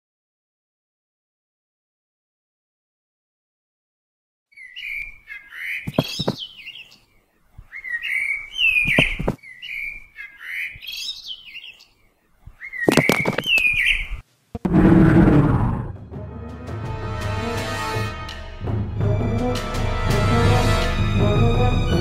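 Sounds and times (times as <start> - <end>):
songbird singing: 4.5 - 14.2.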